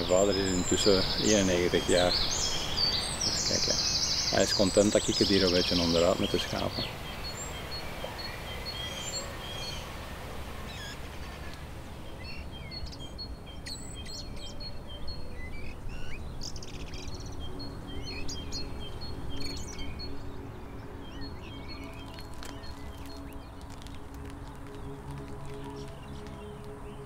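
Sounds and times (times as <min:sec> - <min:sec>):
birds chirping: 0:00.0 - 0:27.0.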